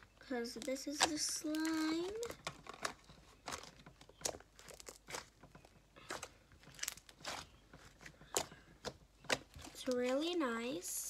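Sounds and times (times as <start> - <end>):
slime squelching: 0.0 - 11.0.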